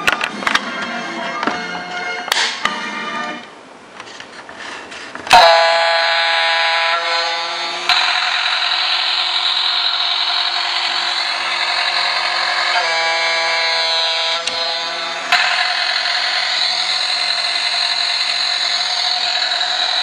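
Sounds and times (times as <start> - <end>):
horn-like tone: 5.3 - 8.3, 9.8 - 15.8
electronic toy sound effects: 7.2 - 20.0
toy motor buzzing whir: 7.2 - 20.0.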